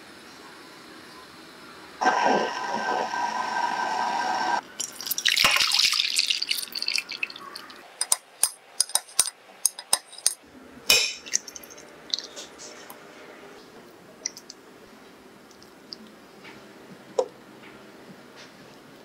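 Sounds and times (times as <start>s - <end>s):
boiling pot hissing: 0.0s - 5.3s
liquid pouring into glass dish: 4.8s - 7.8s.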